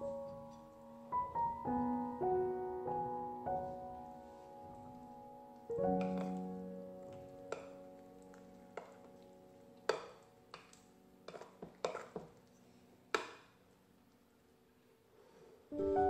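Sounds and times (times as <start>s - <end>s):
piano notes: 0.0s - 12.5s, 15.7s - 16.0s
wet batter squelches: 5.8s - 13.6s
spoon scraping glass bowl: 11.3s - 12.3s.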